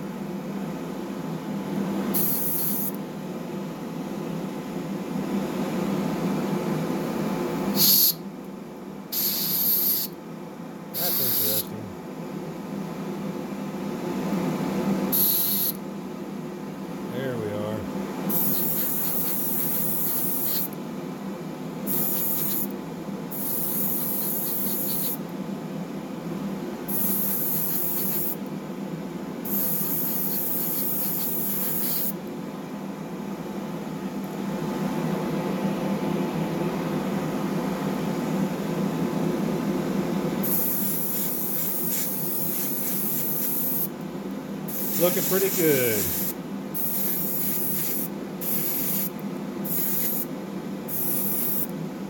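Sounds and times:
small compressor humming: 0.0s - 37.1s, 39.8s - 51.8s
airbrush spraying bursts: 2.2s - 3.0s, 7.8s - 8.2s, 9.2s - 10.1s, 11.0s - 11.7s, 18.3s - 20.7s, 21.9s - 22.7s, 23.4s - 25.2s, 26.9s - 28.4s, 29.5s - 32.2s, 40.4s - 43.9s, 44.7s - 50.3s, 50.9s - 51.7s.

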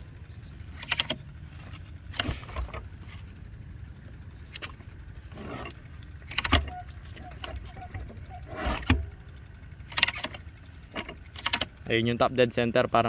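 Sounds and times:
kick-start lever clicks and knocks: 0.8s - 1.3s, 4.5s - 9.2s, 9.9s - 11.8s.

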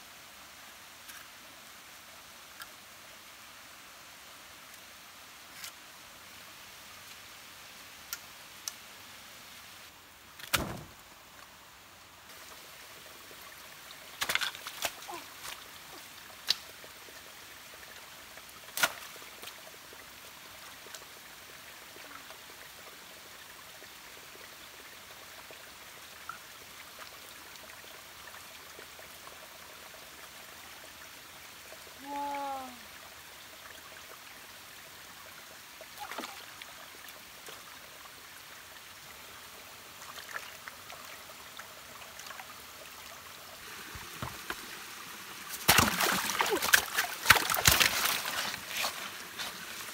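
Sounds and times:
stream trickling: 0.0s - 49.9s
knocks and splashes: 10.4s - 11.0s, 14.2s - 15.6s, 43.8s - 44.7s, 45.5s - 49.6s.

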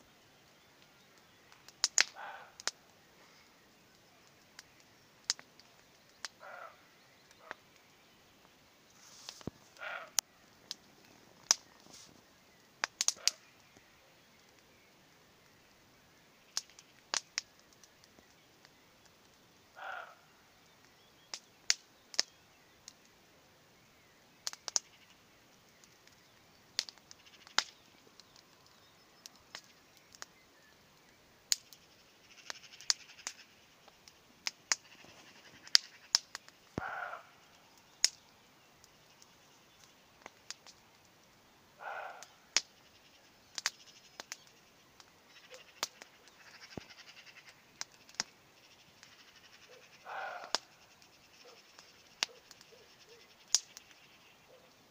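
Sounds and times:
campfire crackling and popping: 0.0s - 54.9s
distant deer barking: 1.6s - 3.5s, 6.2s - 7.8s, 9.6s - 12.1s, 12.8s - 14.2s, 19.6s - 20.6s, 32.2s - 40.8s, 41.7s - 54.8s.

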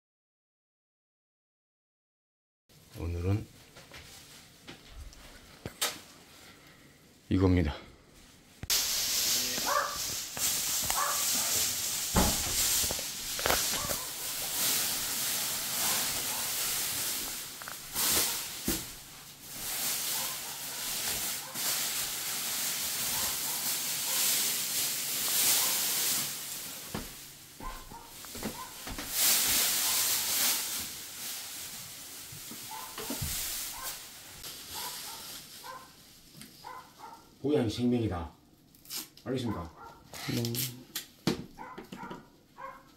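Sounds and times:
plastic sheeting rustling: 2.7s - 6.2s, 8.2s - 37.5s.

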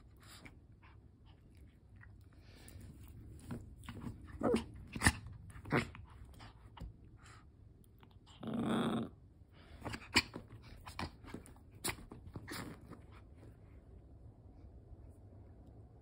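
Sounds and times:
small dog growling: 4.1s - 6.6s, 8.0s - 13.0s.

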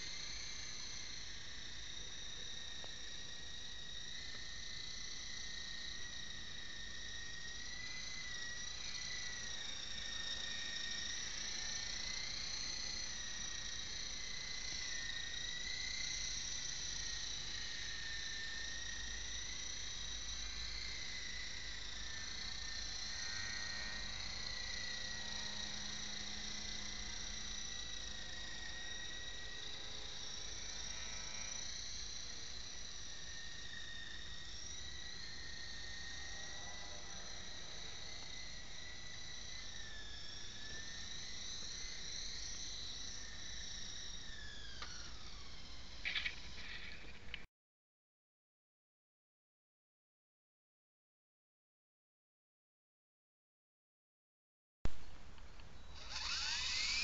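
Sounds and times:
model helicopter whine: 0.0s - 47.5s, 55.4s - 57.0s.

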